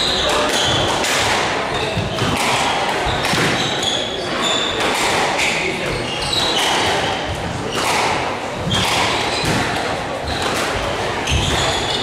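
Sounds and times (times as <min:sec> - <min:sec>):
shoes squeaking on wooden floor: 0:05.9 - 0:06.8, 0:11.2 - 0:12.0
squash ball knocks: 0:06.6 - 0:11.7.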